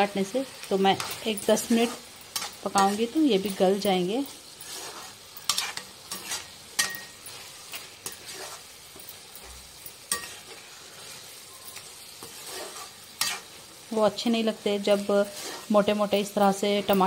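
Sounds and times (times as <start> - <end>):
food sizzling in a frying pan: 0.0 - 17.0
metal spoon scraping a pan: 0.0 - 17.0.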